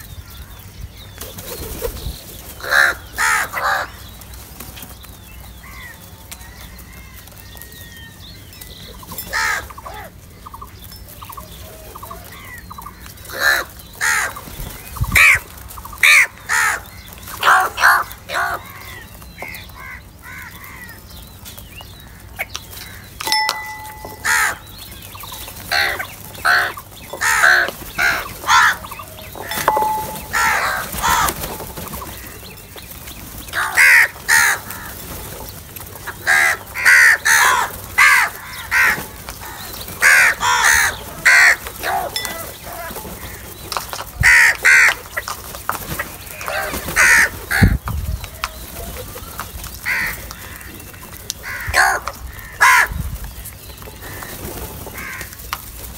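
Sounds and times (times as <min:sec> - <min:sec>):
crows cawing: 0:02.6 - 0:04.0, 0:09.3 - 0:10.2, 0:12.3 - 0:14.4, 0:15.2 - 0:21.0, 0:22.0 - 0:24.7, 0:25.7 - 0:32.4, 0:33.5 - 0:35.0, 0:36.2 - 0:43.5, 0:44.2 - 0:45.0, 0:46.3 - 0:47.8, 0:49.8 - 0:53.0, 0:54.0 - 0:55.4.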